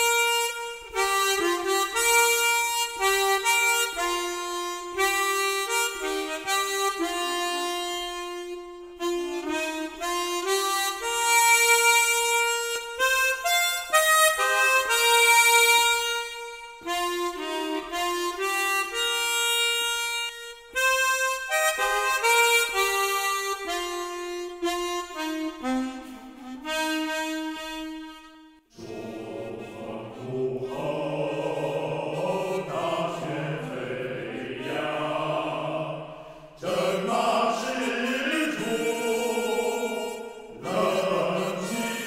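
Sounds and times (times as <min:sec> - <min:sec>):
theme music: 0:28.8 - 0:41.4.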